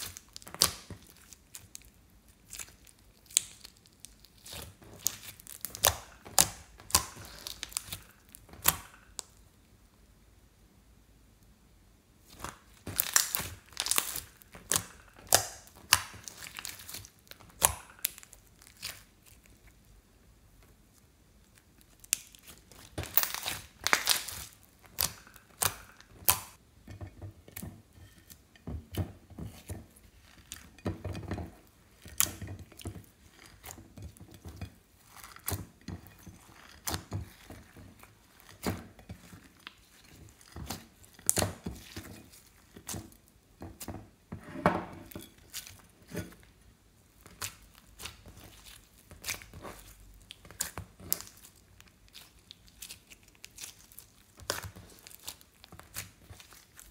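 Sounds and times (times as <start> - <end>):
hands squeezing slime: 0.0 - 9.3, 12.3 - 19.8, 21.5 - 26.6, 47.1 - 56.9.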